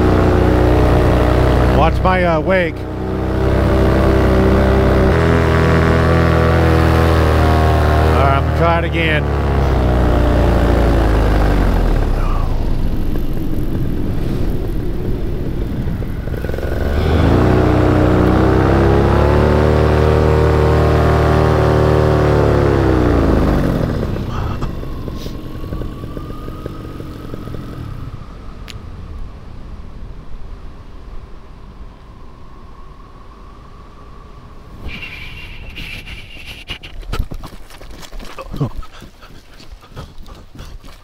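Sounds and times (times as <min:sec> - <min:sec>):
paramotor engine and propeller: 0:00.0 - 0:41.0
wind on microphone: 0:11.8 - 0:18.6, 0:27.4 - 0:37.6.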